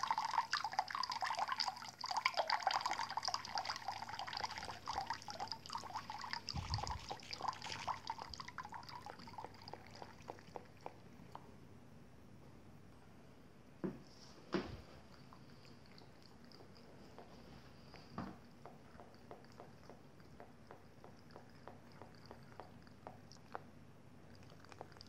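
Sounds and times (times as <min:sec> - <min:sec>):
tap water trickling into basin: 0:00.0 - 0:11.0
cat lapping water: 0:00.0 - 0:11.5, 0:14.9 - 0:25.0.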